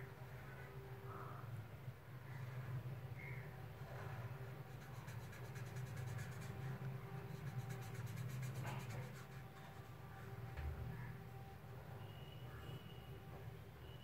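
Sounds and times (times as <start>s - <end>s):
low steady hum: 0.0s - 13.9s
marker scratching on paper: 4.5s - 10.0s.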